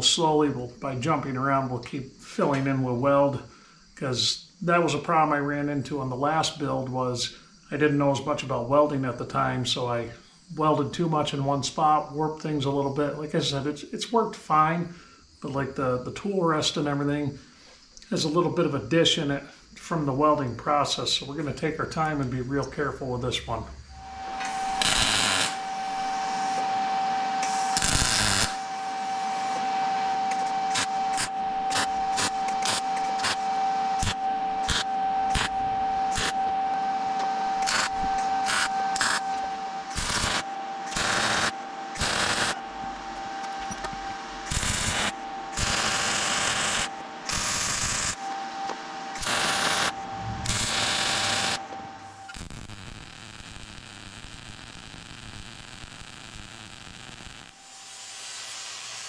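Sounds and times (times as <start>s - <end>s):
steady high hum: 14.5s - 59.0s
welder crackling: 24.0s - 26.6s, 27.4s - 36.8s, 37.5s - 42.6s, 44.4s - 48.2s, 49.2s - 59.0s.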